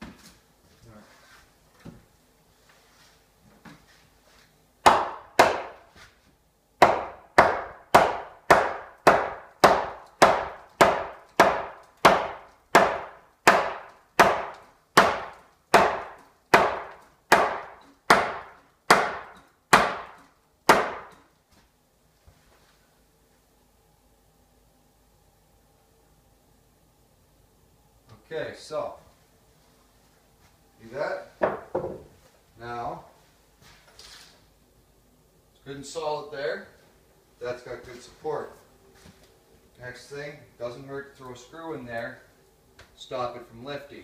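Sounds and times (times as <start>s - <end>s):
hammer nailing wood: 4.8s - 5.8s, 6.8s - 21.2s.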